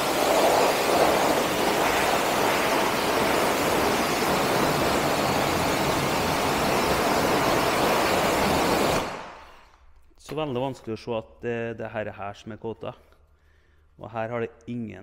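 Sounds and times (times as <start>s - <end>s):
pressure washer jet hissing: 0.0s - 9.6s.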